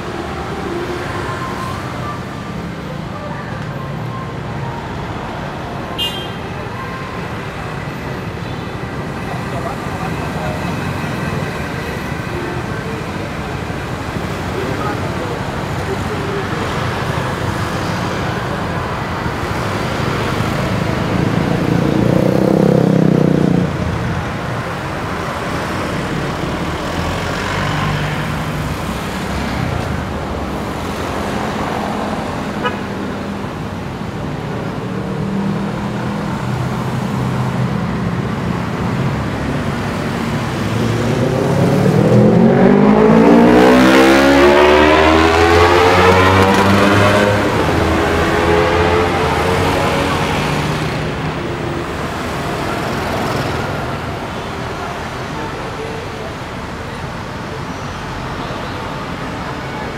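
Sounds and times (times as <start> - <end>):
passing vehicles: 0.0 - 59.9
car horn toots: 6.0 - 6.4.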